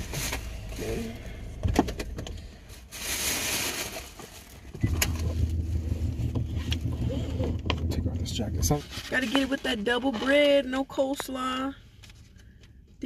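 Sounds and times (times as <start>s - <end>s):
plastic bag rustling: 2.6s - 7.5s
steady low hum: 4.6s - 10.0s.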